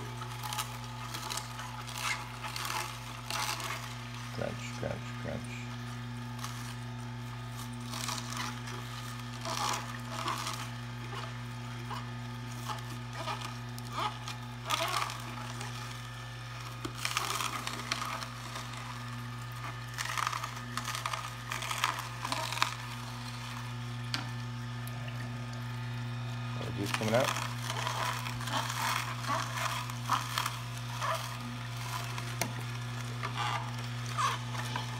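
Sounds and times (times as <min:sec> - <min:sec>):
celery crunching and snapping: 0:00.0 - 0:05.5, 0:06.1 - 0:25.7, 0:26.6 - 0:34.9
juicer motor humming: 0:00.0 - 0:34.9.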